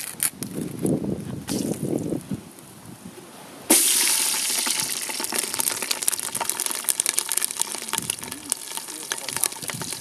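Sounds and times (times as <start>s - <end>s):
oil popping and crackling: 1.5s - 1.9s, 3.7s - 10.0s
chillies sizzling in hot oil: 3.7s - 10.0s.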